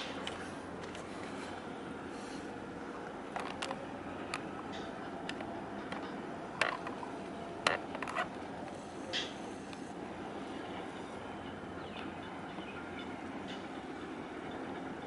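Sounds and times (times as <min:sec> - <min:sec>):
sharp clicks and knocks: 0:03.3 - 0:07.0.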